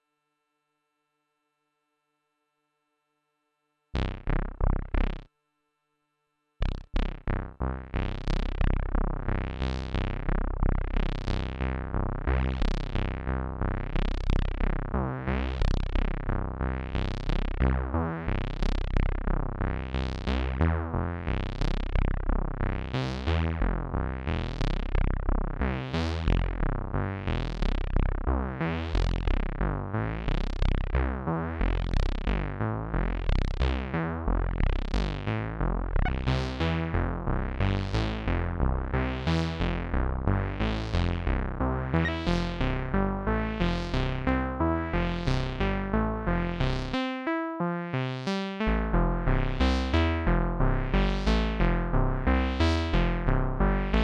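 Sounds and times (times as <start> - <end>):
synthesizer sequenced low notes: 6.6 - 54.0.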